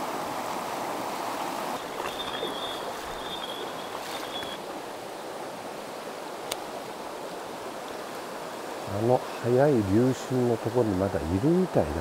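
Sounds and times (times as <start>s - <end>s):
stream water rushing: 0.0s - 12.0s.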